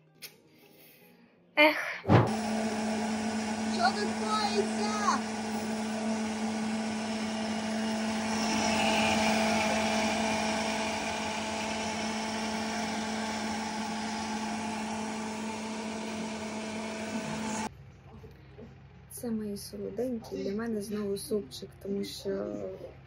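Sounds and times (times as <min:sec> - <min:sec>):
blender motor whining: 0:02.3 - 0:17.7.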